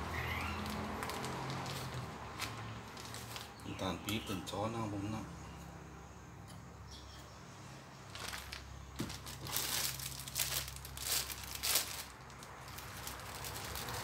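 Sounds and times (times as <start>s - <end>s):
plastic bag crinkling: 0.6s - 3.6s, 8.1s - 14.0s.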